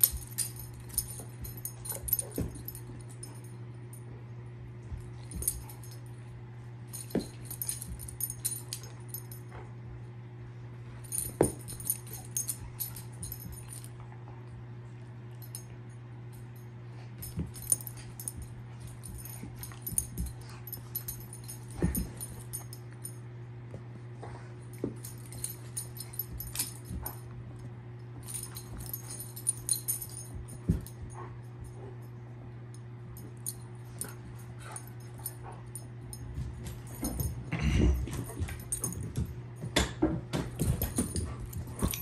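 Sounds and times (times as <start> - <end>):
collar tags jingling: 0.0 - 3.7, 4.9 - 6.2, 6.8 - 9.5, 11.0 - 14.0, 16.3 - 23.2, 24.6 - 27.4, 28.2 - 32.1, 32.7 - 39.5, 40.5 - 42.0
steady low hum: 0.0 - 42.0.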